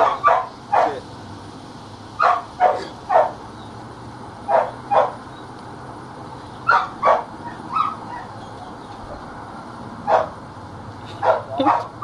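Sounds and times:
dog barking: 0.0 - 1.0, 2.2 - 3.4, 4.5 - 5.2, 6.6 - 8.4, 10.0 - 10.4, 11.2 - 12.0.

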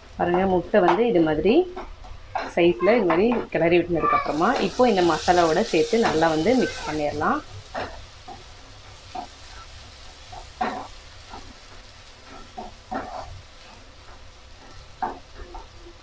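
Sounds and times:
light sizzle: 0.0 - 16.0
spatula scraping a pan: 4.3 - 16.0.

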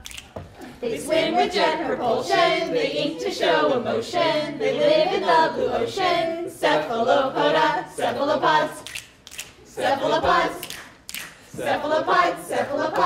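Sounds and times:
voices singing unaccompanied: 0.6 - 13.0
sharp claps: 10.2 - 11.4.

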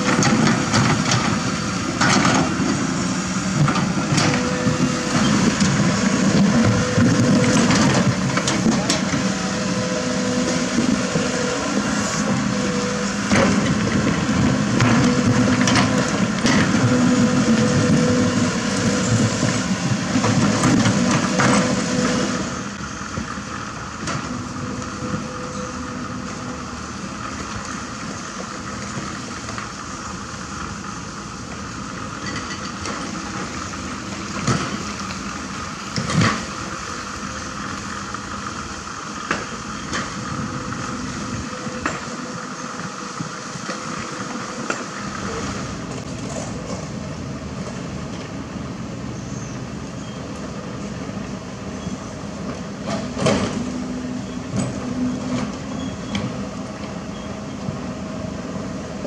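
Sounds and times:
excavator diesel engine whining: 0.0 - 59.0.

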